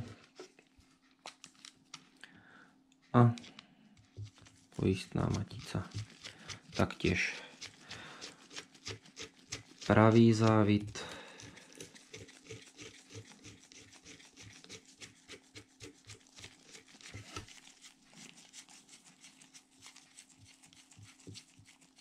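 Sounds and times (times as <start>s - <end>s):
faint steady hum: 0.0s - 18.3s.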